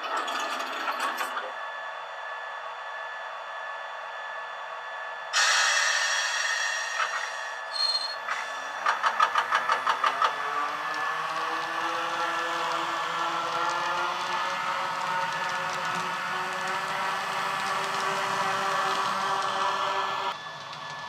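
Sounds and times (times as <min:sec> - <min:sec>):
loud hiss of air: 0:05.4 - 0:08.8
motor whine with rapid clicking: 0:07.0 - 0:21.0.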